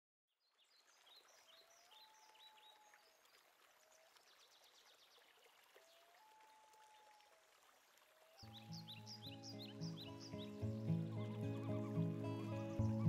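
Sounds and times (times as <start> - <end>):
small birds chirping: 8.3 - 13.0.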